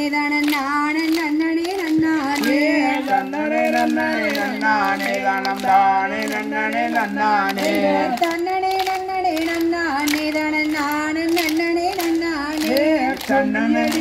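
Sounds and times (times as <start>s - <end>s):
rhythmic hand claps: 0.0s - 14.0s
women singing folk song: 0.0s - 14.0s.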